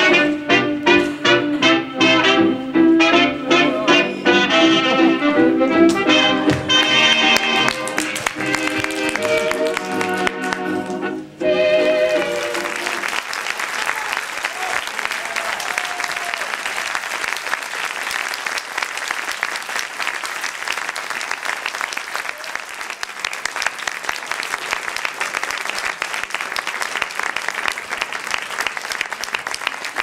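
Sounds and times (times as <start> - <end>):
audience applauding: 6.5 - 30.0.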